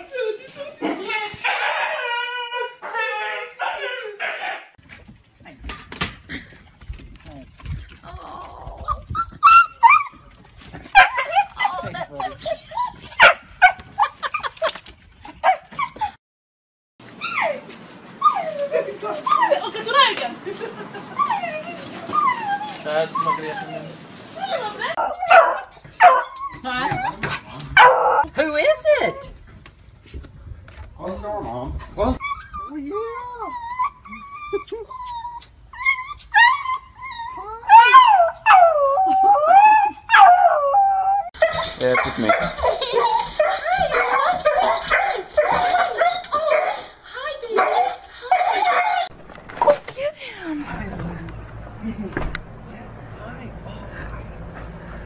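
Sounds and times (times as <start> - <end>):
husky whining and yipping: 7.7 - 16.2, 17.0 - 29.3, 32.1 - 46.9, 47.5 - 49.8.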